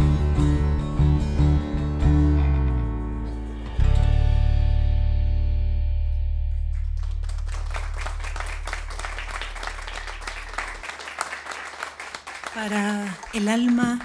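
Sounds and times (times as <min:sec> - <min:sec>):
guitar chord ringing: 0:00.0 - 0:06.9
audience applause: 0:06.7 - 0:14.0.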